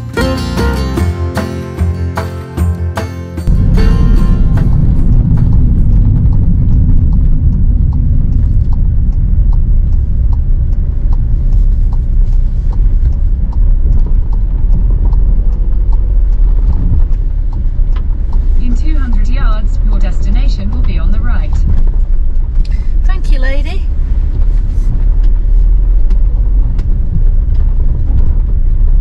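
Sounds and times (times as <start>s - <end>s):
road and engine rumble: 0.0s - 29.0s
faint light ticks: 6.3s - 22.8s.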